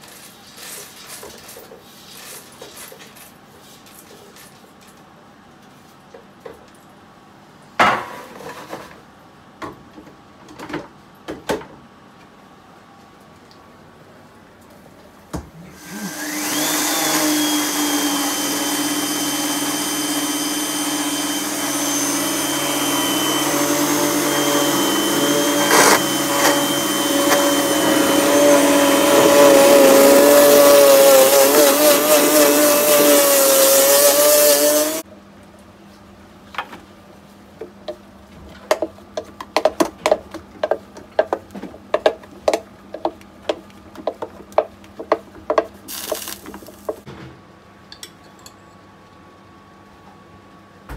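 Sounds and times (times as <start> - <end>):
blender motor grinding seeds: 15.8 - 35.0, 45.9 - 47.0.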